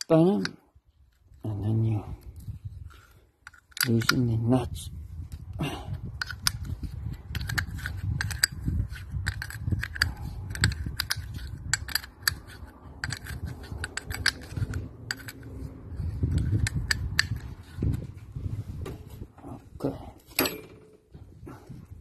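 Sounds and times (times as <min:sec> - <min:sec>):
spanner clicking on metal nuts: 0:07.3 - 0:15.5.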